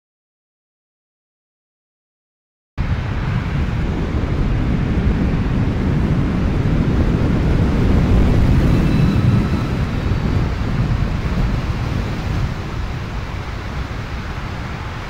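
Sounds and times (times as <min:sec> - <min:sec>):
tyre and wind noise rumble: 0:02.8 - 0:15.0
faint thin whine: 0:08.1 - 0:15.0.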